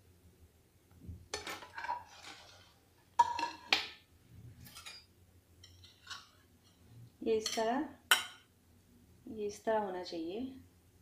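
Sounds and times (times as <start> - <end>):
steel plates clinking and scraping: 4.6 - 6.8.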